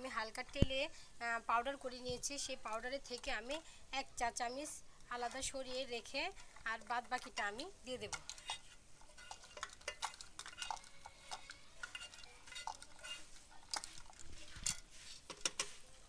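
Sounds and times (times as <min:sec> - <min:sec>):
faint sizzling in pot: 0:00.0 - 0:16.0
spatula scraping and tapping pan: 0:02.2 - 0:03.6, 0:05.1 - 0:15.9.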